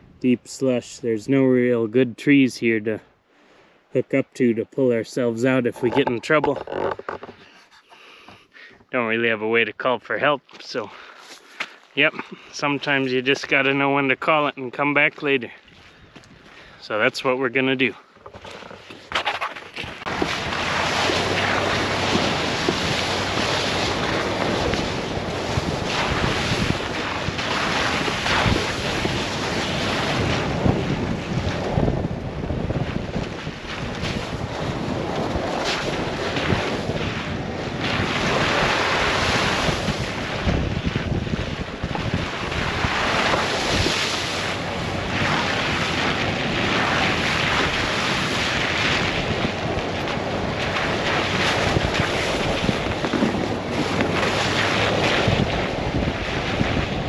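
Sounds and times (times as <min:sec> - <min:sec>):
tyres on slush and gravel: 0:05.2 - 0:08.0, 0:10.1 - 0:57.0
wind rushing over microphone: 0:19.2 - 0:57.0.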